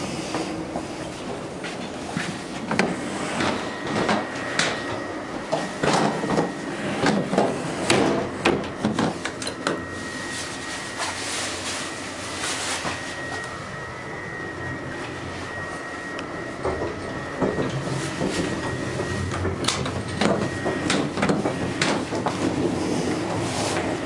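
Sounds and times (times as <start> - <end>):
train running rumble: 0.0 - 24.0
faint steady high tone: 3.4 - 21.3.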